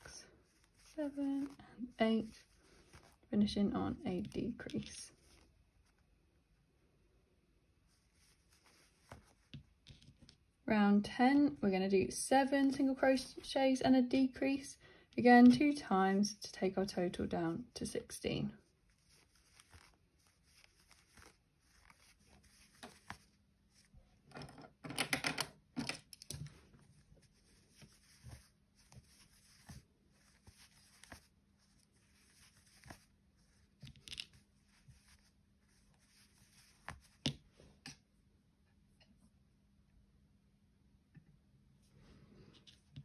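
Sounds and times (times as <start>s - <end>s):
yarn rustling: 0.0s - 6.2s, 7.8s - 10.2s, 18.3s - 24.0s, 26.5s - 37.3s.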